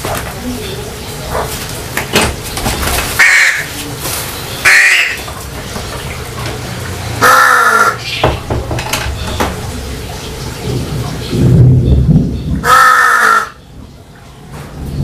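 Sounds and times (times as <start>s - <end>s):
crow cawing: 3.2s - 3.8s, 4.6s - 5.3s, 7.2s - 8.2s, 12.6s - 13.6s.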